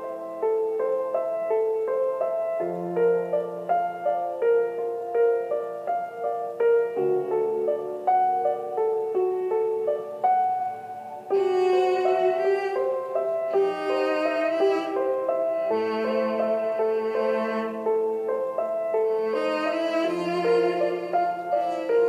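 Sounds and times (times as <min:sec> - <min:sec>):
piano notes: 0:00.0 - 0:22.0
bowed string melody: 0:06.6 - 0:22.0.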